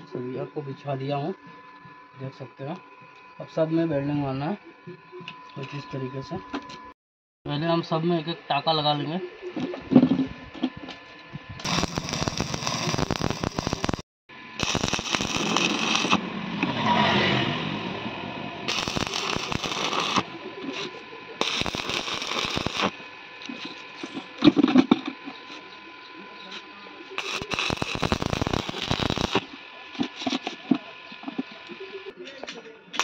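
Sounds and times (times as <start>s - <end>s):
welding arc crackling and hissing: 11.5s - 14.0s, 14.6s - 16.2s, 18.7s - 25.6s, 26.4s - 32.1s.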